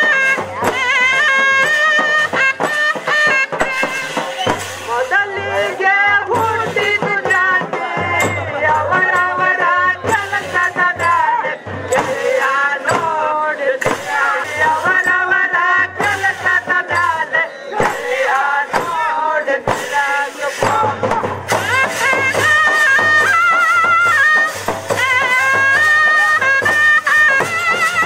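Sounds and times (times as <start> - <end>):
folk melody with held notes: 0.0 - 13.5, 21.6 - 28.0
steady low drum beat: 0.0 - 28.0
person singing: 4.8 - 28.0.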